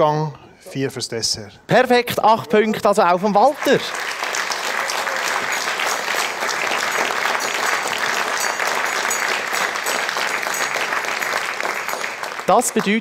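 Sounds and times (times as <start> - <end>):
audience applauding: 3.3 - 13.0.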